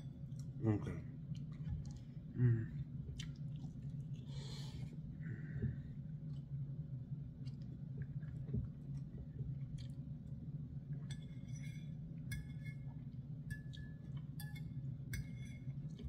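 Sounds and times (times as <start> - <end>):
steady low hum: 0.0 - 16.0
fork clinking on ceramic plate: 14.4 - 15.7.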